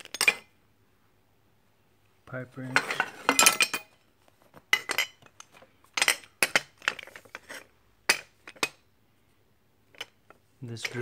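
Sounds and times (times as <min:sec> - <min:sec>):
metal hand tools clanking: 0:02.7 - 0:03.9, 0:10.0 - 0:11.0.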